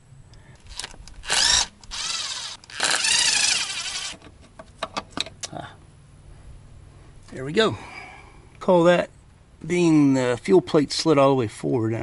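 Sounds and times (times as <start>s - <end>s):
cordless drill running: 0.7s - 4.2s.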